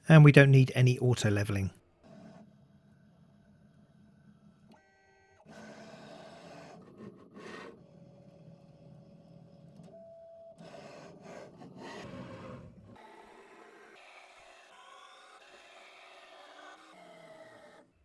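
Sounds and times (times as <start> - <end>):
cnc mill motors running: 10.6 - 17.9.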